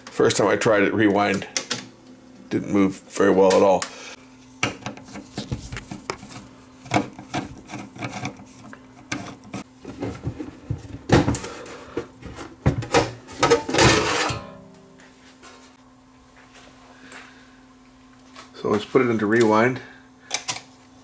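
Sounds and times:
faint steady hum: 0:00.0 - 0:21.0
metal cover sliding off: 0:13.4 - 0:14.6.

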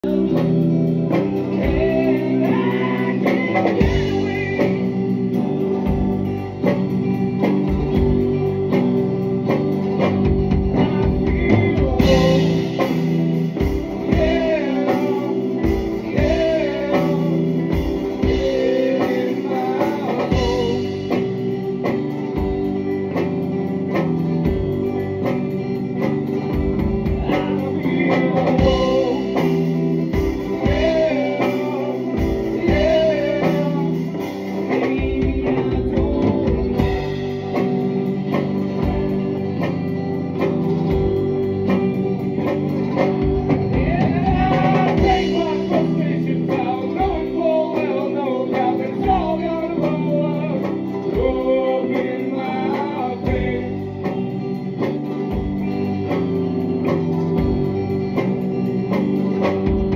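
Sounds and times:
person singing: 0:00.0 - 0:07.6, 0:10.4 - 0:22.2, 0:26.8 - 0:39.8, 0:42.4 - 0:54.6
drum kit: 0:00.0 - 0:59.9
guitar: 0:00.0 - 0:59.9.

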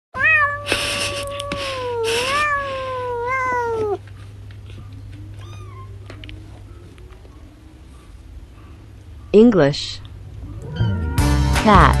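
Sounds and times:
cat meowing: 0:00.2 - 0:04.0, 0:05.4 - 0:06.0.

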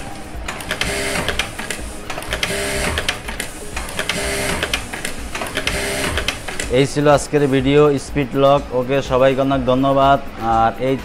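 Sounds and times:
sewing machine stitching: 0:00.4 - 0:06.8.

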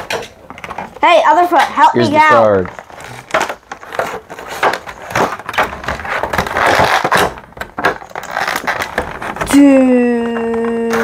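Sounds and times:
plastic packaging crinkling: 0:02.5 - 0:09.5.

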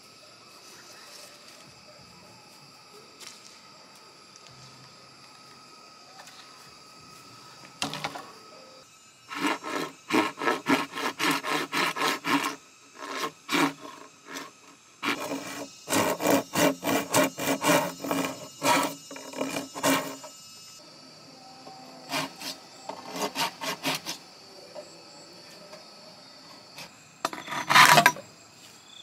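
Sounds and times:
hand tool rasping on bamboo: 0:09.3 - 0:20.4, 0:22.0 - 0:24.2, 0:26.8 - 0:28.2.

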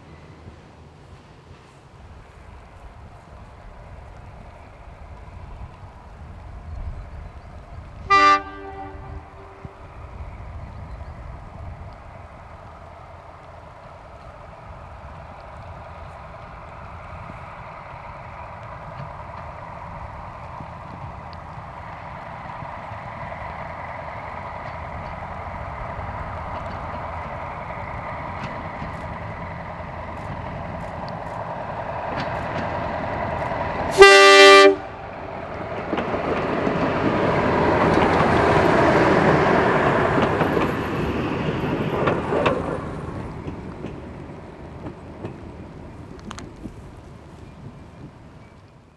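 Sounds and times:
diesel railcar engine hum: 0:00.0 - 0:48.9
train wheels rumbling on rails: 0:00.0 - 0:48.9
train horn blast: 0:08.0 - 0:09.8, 0:33.9 - 0:35.0.

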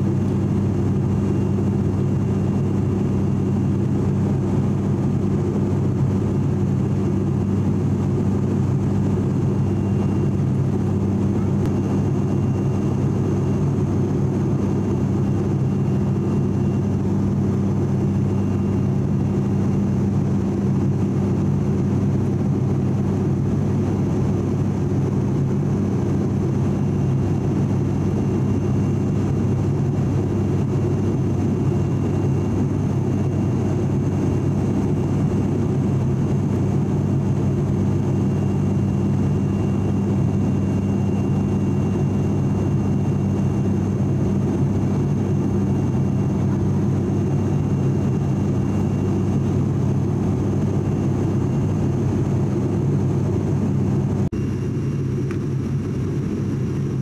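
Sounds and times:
faint high whine: 0:00.0 - 0:57.0
turboprop cabin drone: 0:00.0 - 0:57.0.

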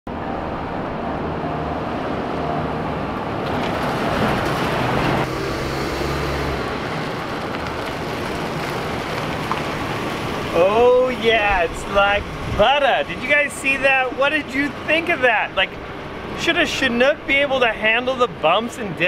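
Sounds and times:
tyre noise on pavement: 0:03.4 - 0:12.6.

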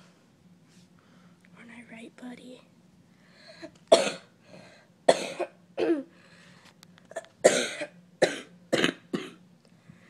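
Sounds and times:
person coughing: 0:03.6 - 0:04.3, 0:05.1 - 0:06.1, 0:07.1 - 0:09.4.

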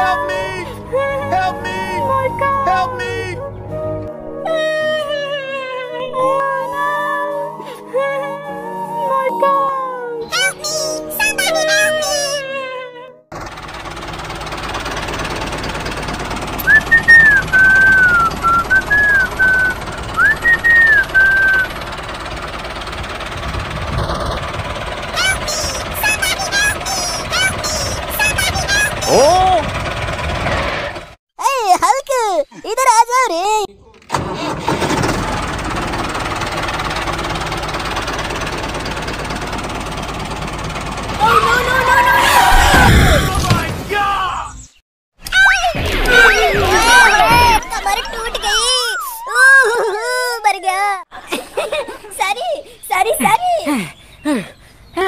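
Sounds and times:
mechanical engine-like noise: 0:13.3 - 0:31.2, 0:34.0 - 0:43.8, 0:45.5 - 0:49.3
person whistling a tune: 0:16.6 - 0:21.7.

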